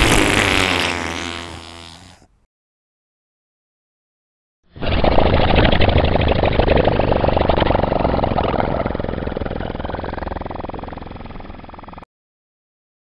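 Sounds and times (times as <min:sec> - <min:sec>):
comic fart sound effect: 0:00.0 - 0:02.4, 0:04.8 - 0:12.1.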